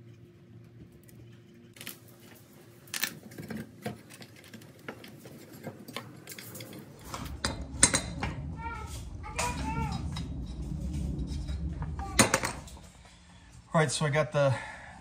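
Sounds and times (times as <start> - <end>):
small metal parts clicking: 2.9 - 8.1.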